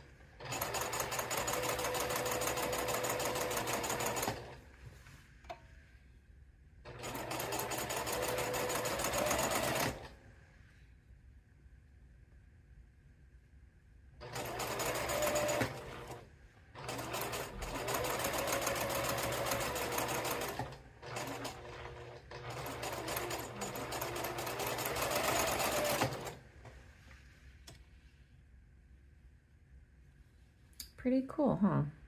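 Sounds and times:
electric sewing machine stitching: 0.4 - 4.6, 6.9 - 10.1, 14.2 - 16.2, 16.8 - 26.4.

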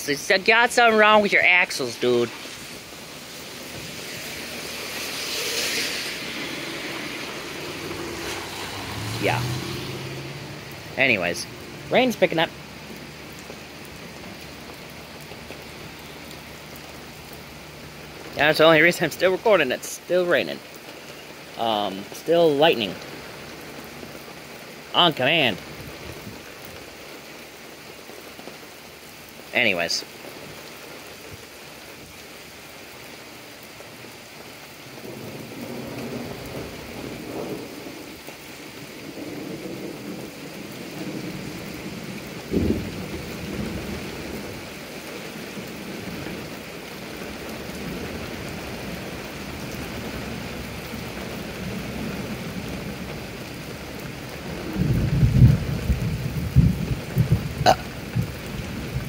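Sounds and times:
rain on wet pavement: 0.0 - 59.0
thunder rumbling and cracking: 35.0 - 44.7, 54.1 - 59.0.

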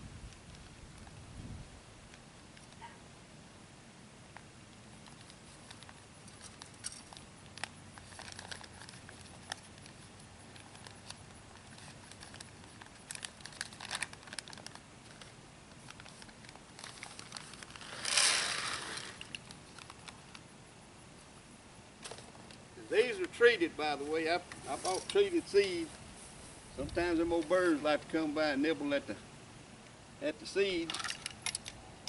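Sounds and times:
paper bag crinkling: 5.1 - 20.3.

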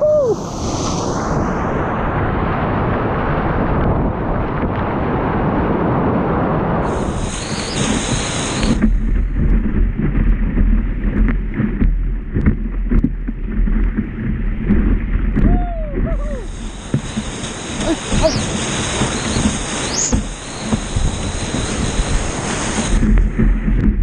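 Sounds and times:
water splashing and gurgling: 6.9 - 24.0
whitewater rapids rushing: 15.4 - 23.2.

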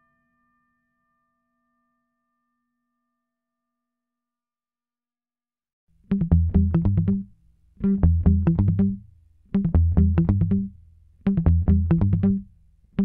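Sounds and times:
plucked notes over bass line: 6.1 - 9.0, 9.6 - 12.5.

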